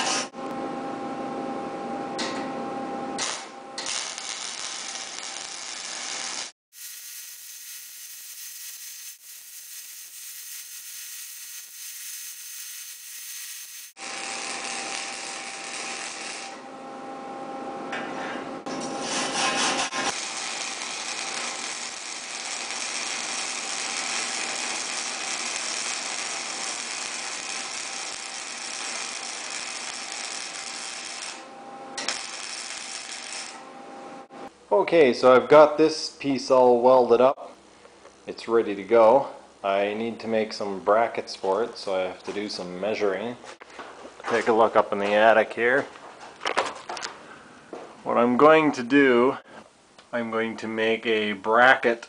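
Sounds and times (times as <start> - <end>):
welder arc crackling: 3.2 - 16.6, 20.1 - 31.4, 32.0 - 33.6.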